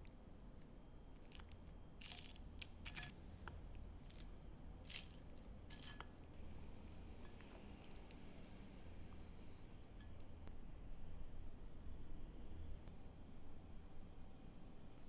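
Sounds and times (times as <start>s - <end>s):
spoon scraping crunchy crust: 0.0s - 9.8s.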